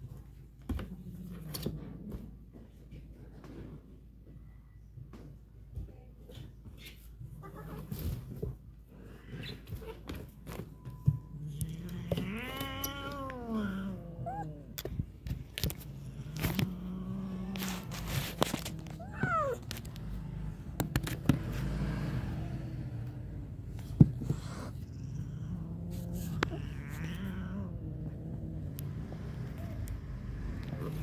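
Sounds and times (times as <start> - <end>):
cat growling: 11.1 - 20.8, 21.6 - 31.0
cat yowling: 11.6 - 14.7.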